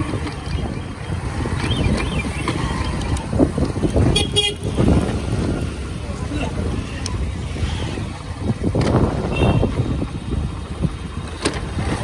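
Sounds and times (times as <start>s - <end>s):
motorcycle engine rumble: 0.0s - 12.0s
wind on microphone: 0.0s - 12.0s
vehicle horn toot: 4.1s - 4.8s, 9.3s - 9.8s.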